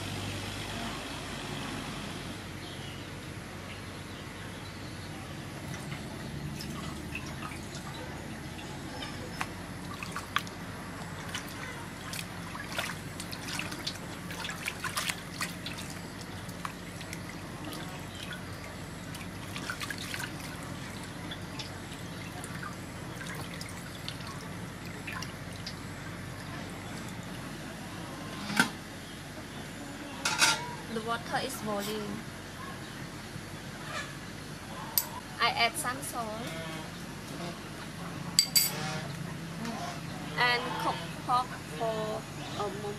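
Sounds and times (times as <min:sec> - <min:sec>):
water splashing in metal basin: 0:05.6 - 0:27.4.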